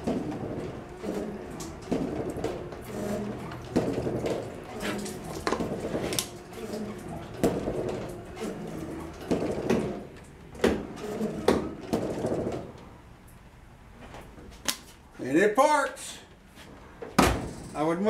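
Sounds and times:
wiper clunking: 0.0s - 13.0s
wiper motor whirring: 0.0s - 13.0s.

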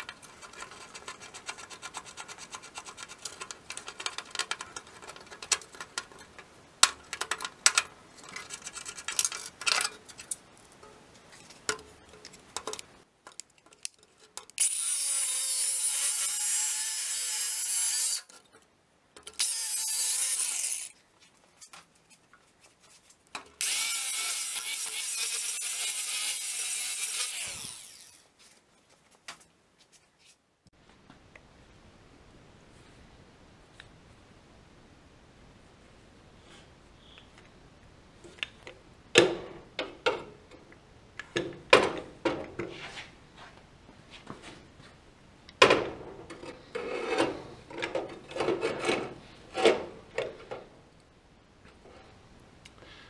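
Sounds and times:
scraping and clicking on metal: 0.0s - 14.6s, 46.3s - 50.6s
angle grinder grinding metal: 14.6s - 18.3s, 19.4s - 21.0s, 23.6s - 28.2s.

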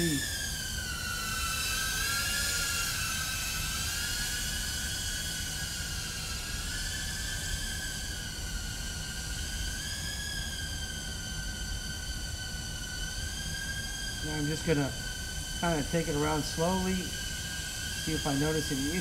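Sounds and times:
drone propellers whining: 0.0s - 19.0s.

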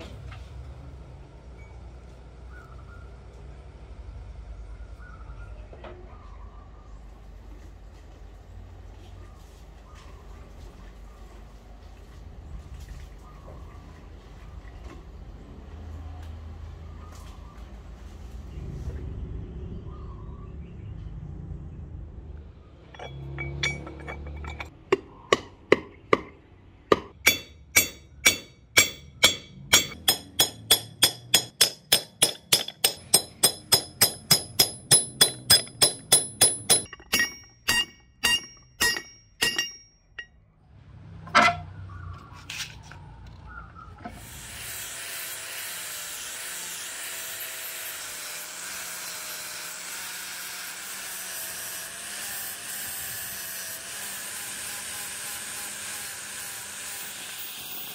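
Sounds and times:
hammer striking metal on anvil: 22.9s - 40.4s
angle grinder grinding: 44.0s - 57.9s.

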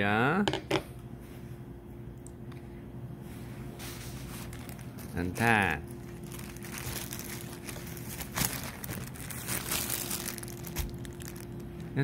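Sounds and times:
faint steady hum: 0.0s - 12.0s
rustling and crinkling handling: 3.2s - 12.0s.

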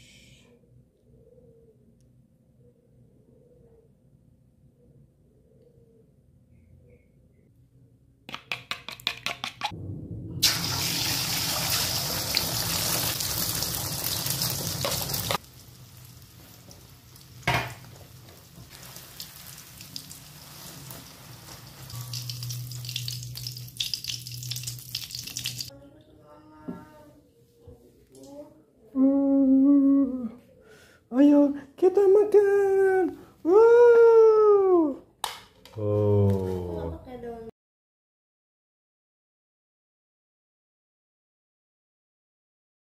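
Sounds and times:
egg sizzling in hot oil: 10.4s - 25.7s.

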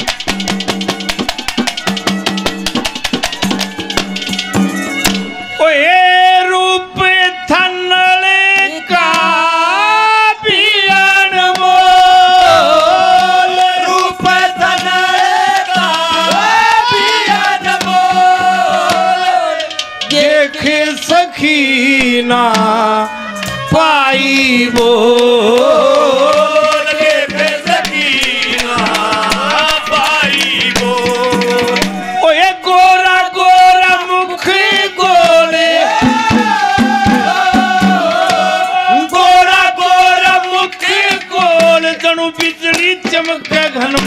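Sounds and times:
hand drums: 0.0s - 5.6s, 8.5s - 9.6s, 10.5s - 44.0s
man singing: 5.6s - 44.0s.

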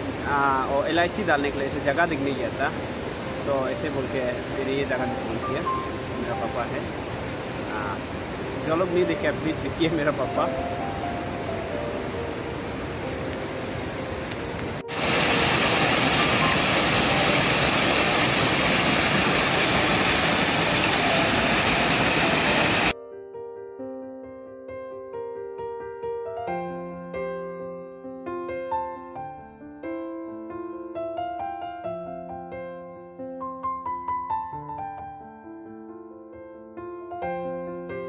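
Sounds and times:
waterfall rushing: 0.0s - 23.0s
gentle piano tune: 0.0s - 38.0s.

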